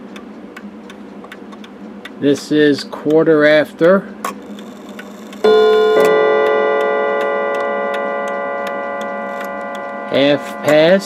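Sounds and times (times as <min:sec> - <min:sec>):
clock ticking: 0:00.0 - 0:04.1, 0:05.0 - 0:11.0
chime hammers striking gongs: 0:05.5 - 0:11.0.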